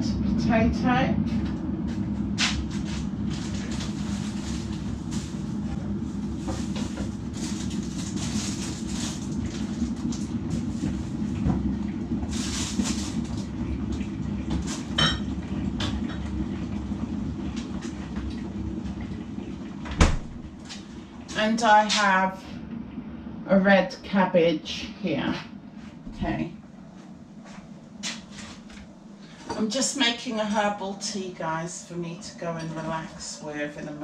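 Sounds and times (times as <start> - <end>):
kitchen appliance humming: 0.0 - 23.4.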